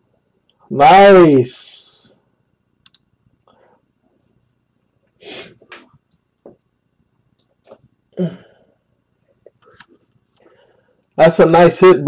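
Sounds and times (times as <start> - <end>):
man sniffing and huffing: 5.2 - 5.8.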